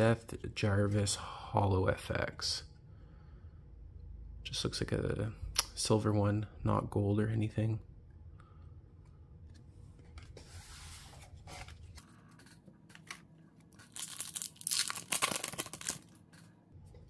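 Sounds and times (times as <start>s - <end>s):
foil pack crinkling tearing: 13.7s - 16.2s.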